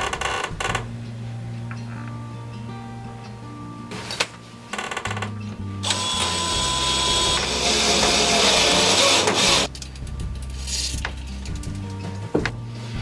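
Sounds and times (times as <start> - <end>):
cordless drill boring through steel: 5.8 - 9.7.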